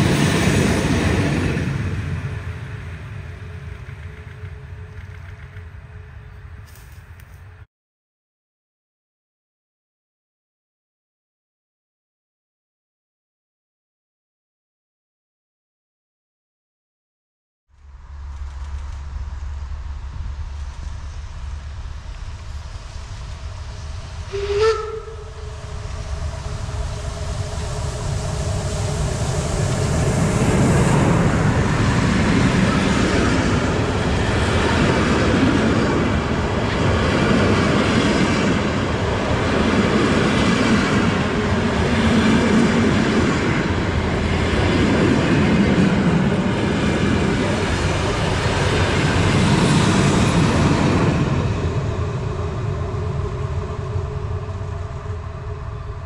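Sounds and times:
train running past: 0.0 - 7.7, 17.8 - 56.0
steam locomotive whistle: 24.2 - 29.1.

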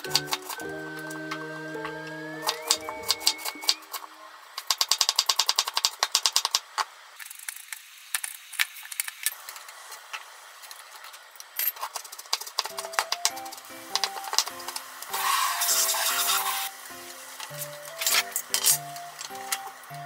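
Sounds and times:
soft background music: 0.0 - 4.4, 12.7 - 20.0
chopsticks tapping in frying pan: 12.6 - 15.2.

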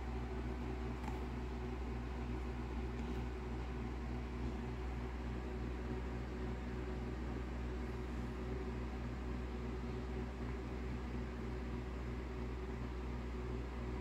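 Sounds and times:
low electrical hum: 0.0 - 14.0.

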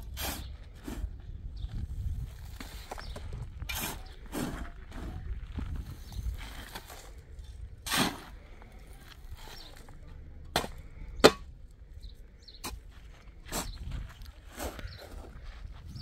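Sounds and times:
shovel scraping stony earth: 0.0 - 1.2, 1.8 - 11.5, 12.6 - 16.0
dirt clanking into metal wheelbarrow: 7.8 - 8.4, 10.4 - 11.5.

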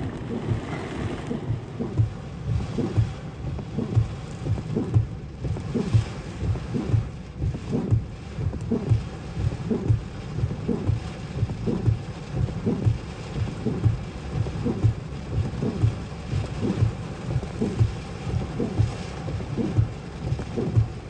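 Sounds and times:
heavy rain drumming on car roof: 0.0 - 21.0
windshield wipers thumping: 0.0 - 21.0.

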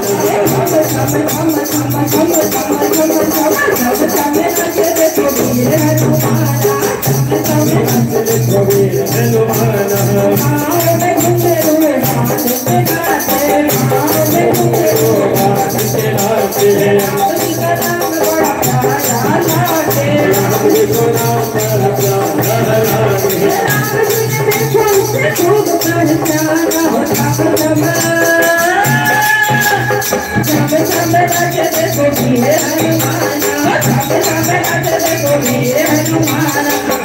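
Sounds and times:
hand drum beat: 0.0 - 37.0
percussion: 0.0 - 37.0
voices singing devotional song: 0.0 - 37.0.

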